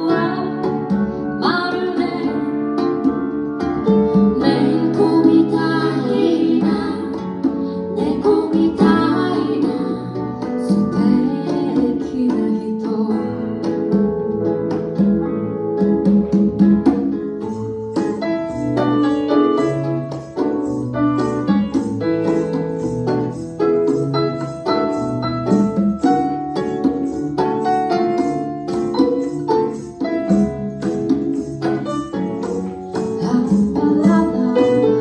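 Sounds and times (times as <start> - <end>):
woman singing: 0.0 - 3.0, 4.1 - 13.9, 32.9 - 35.0
acoustic guitar: 0.0 - 35.0
congas: 0.0 - 35.0.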